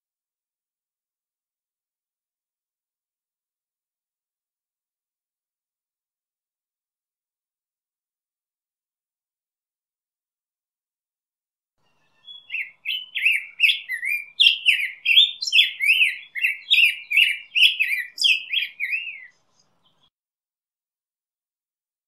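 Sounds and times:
bird singing warbled song: 0:11.8 - 0:20.1.

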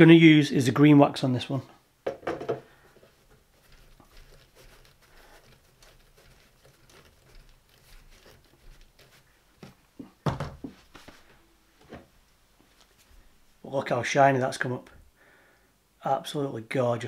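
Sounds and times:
faint rustling: 0:02.6 - 0:13.6.

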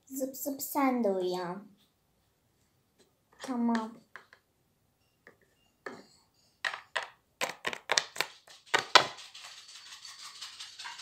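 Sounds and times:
cat scratching itself: 0:08.4 - 0:11.0.

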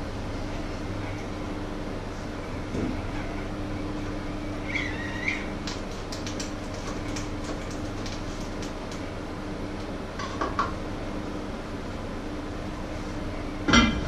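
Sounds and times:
kitchen hum and hiss: 0:00.0 - 0:14.0
food preparation clicks and taps: 0:05.6 - 0:09.0.

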